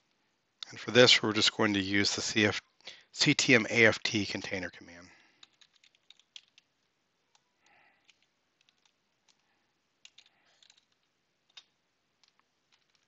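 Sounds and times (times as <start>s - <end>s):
computer keyboard keystrokes: 5.4s - 6.7s, 7.3s - 9.4s, 10.0s - 13.0s.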